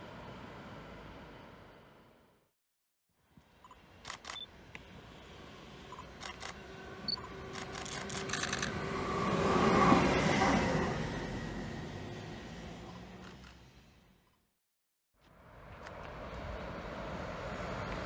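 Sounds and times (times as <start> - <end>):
electric locomotive passing: 5.2 - 13.8.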